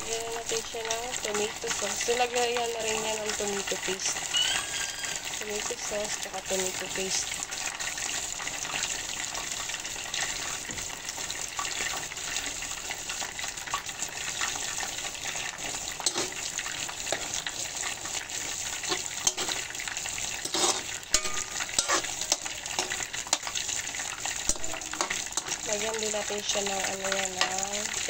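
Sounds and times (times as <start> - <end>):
chicken sizzling in a pan: 0.0 - 28.0
metal ladle scraping and knocking pan: 16.0 - 16.4, 18.8 - 19.8, 20.4 - 23.6, 24.4 - 25.6.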